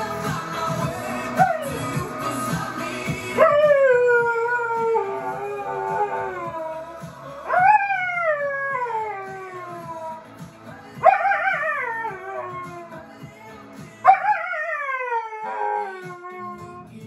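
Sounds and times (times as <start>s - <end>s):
pop song: 0.0s - 17.0s
dog howling: 3.4s - 10.2s, 11.0s - 13.0s, 14.1s - 16.8s.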